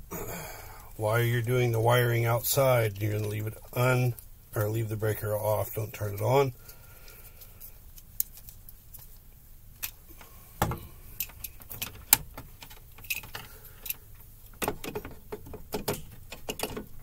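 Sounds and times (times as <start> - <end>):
metallic clicks of tools and parts: 9.8 - 14.0, 14.6 - 17.0.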